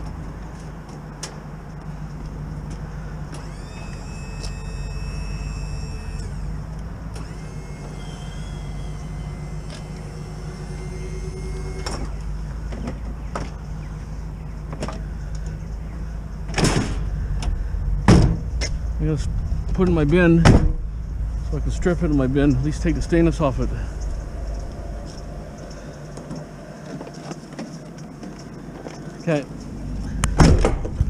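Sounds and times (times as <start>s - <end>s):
constant low hum: 0.0s - 31.0s
wheelchair lift motor whining: 3.3s - 12.7s
heavy thud: 16.5s - 21.5s, 30.3s - 31.0s.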